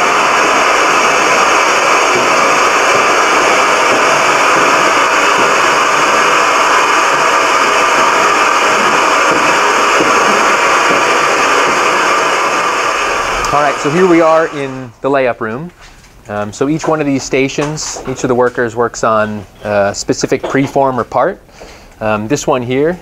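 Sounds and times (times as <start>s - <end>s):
cutting plotter whirring: 0.0s - 15.0s.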